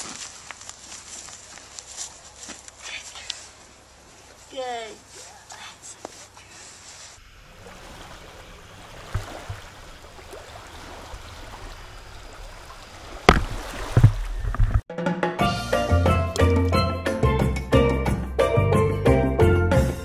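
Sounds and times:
water trickling and lapping: 0.0s - 14.8s
water splashing: 7.2s - 14.8s.

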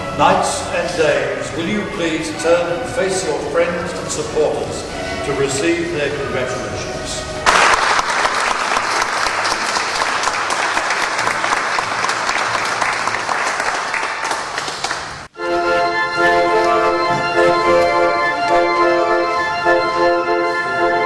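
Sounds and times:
organ playing sustained chords: 0.0s - 21.0s
congregation applauding: 7.4s - 15.3s.

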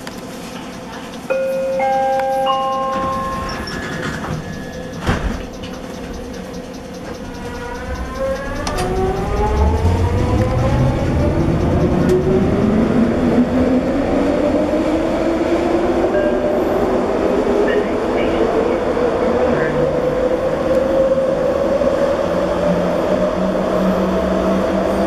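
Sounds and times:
wheels rumbling on rails: 0.0s - 25.0s
rising motor whine: 7.4s - 14.8s.

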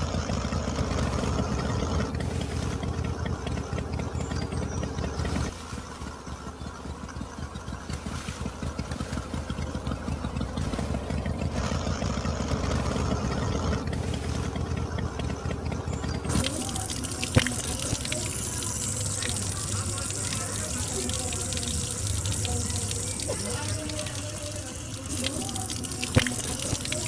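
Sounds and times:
small motor rattling: 0.0s - 27.0s
juice pouring into steel cup: 16.3s - 27.0s.

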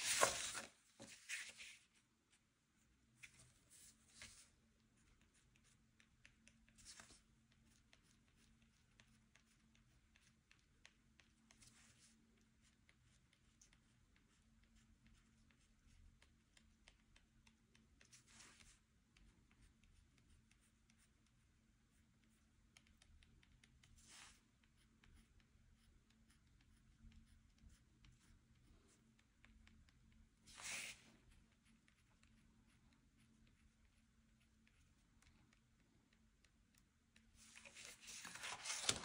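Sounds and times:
pen scratching on paper: 23.8s - 29.8s.

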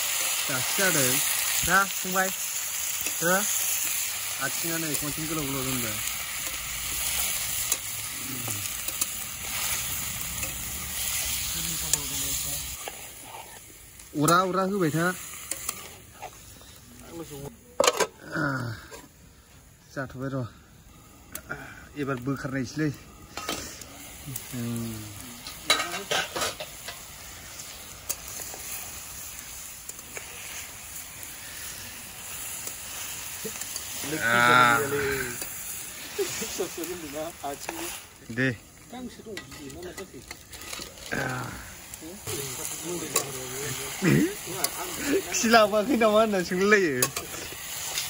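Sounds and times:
food sizzling in hot oil: 0.0s - 19.4s, 20.0s - 48.0s
metal spatula scraping a pan: 8.6s - 16.5s, 25.4s - 28.9s, 39.0s - 41.3s, 42.2s - 48.0s.

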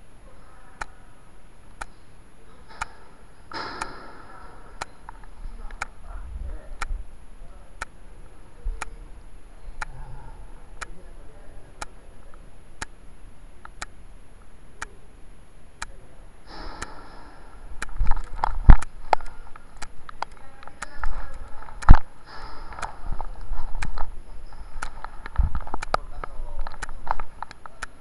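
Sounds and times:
muffled commotion: 0.0s - 28.0s
sharp ticks: 15.8s - 28.0s.

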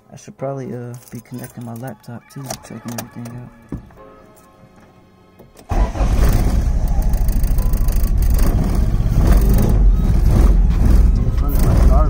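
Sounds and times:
car engine starting and running: 5.4s - 12.0s.

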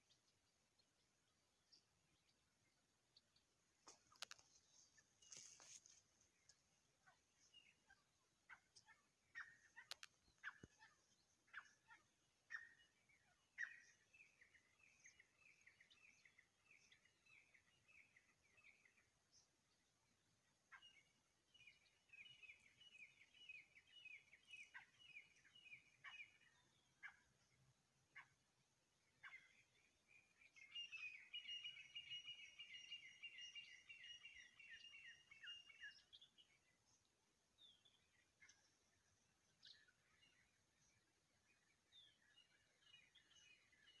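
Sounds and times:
francolins calling: 7.0s - 19.0s, 20.7s - 28.4s, 29.0s - 36.6s
sharp clicks: 9.8s - 10.2s.

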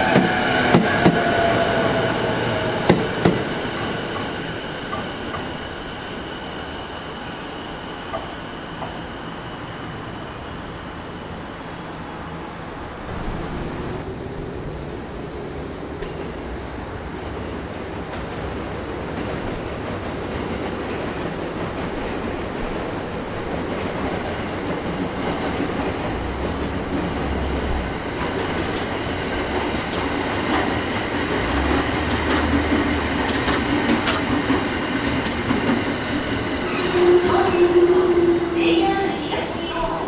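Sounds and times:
electric train rolling past: 0.0s - 40.0s
wheels clicking over rail joints: 23.6s - 36.6s.

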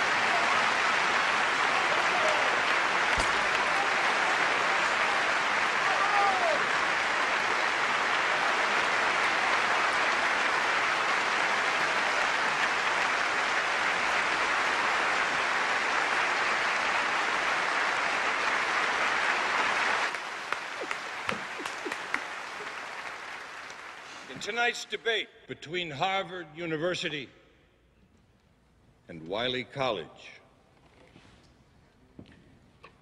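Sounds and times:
close hand claps: 0.0s - 24.6s
large crowd applauding: 0.0s - 25.0s.

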